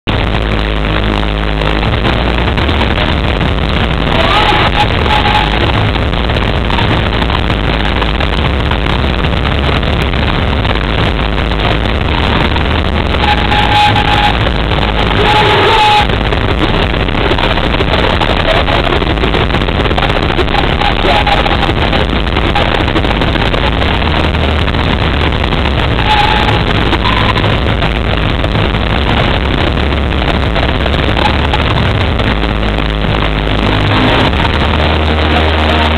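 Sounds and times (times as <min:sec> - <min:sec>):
crowd cheering and screaming: 0:03.8 - 0:06.9.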